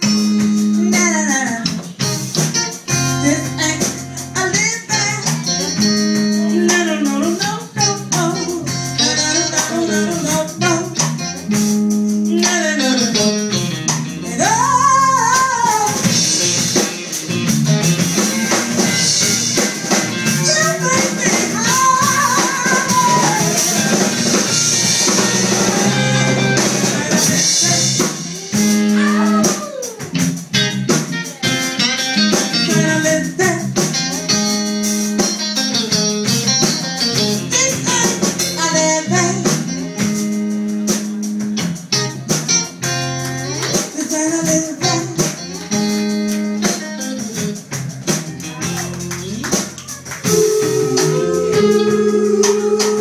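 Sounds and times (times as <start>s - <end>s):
amplified electric guitar: 0.0s - 53.0s
drum kit: 0.0s - 53.0s
person singing: 3.2s - 11.0s, 12.2s - 13.4s, 14.2s - 16.2s, 20.4s - 30.2s, 37.5s - 39.8s, 43.4s - 45.8s, 50.2s - 53.0s.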